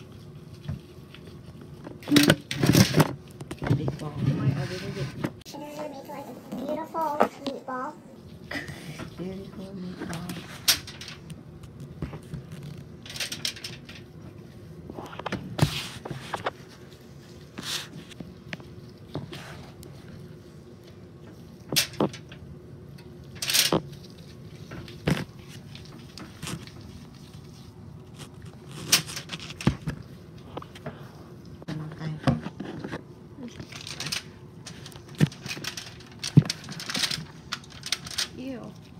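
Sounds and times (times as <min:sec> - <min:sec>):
aluminium foil crinkling: 0:08.3 - 0:19.1, 0:20.0 - 0:30.8, 0:32.7 - 0:38.9.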